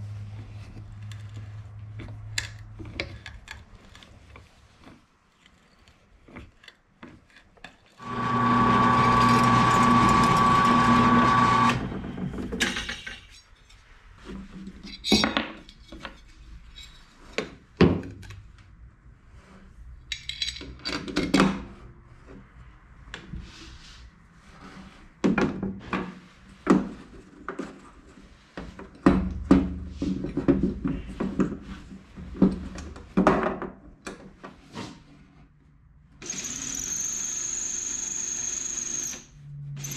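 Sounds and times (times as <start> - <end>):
motor running: 8.0 - 11.9
metal parts clicking and clattering: 12.5 - 13.7, 20.1 - 21.4.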